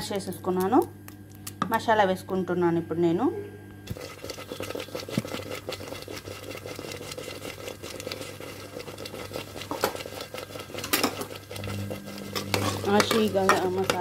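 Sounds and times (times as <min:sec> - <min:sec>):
low machine hum: 0:00.0 - 0:14.0
thick stew popping and spluttering: 0:03.9 - 0:14.0.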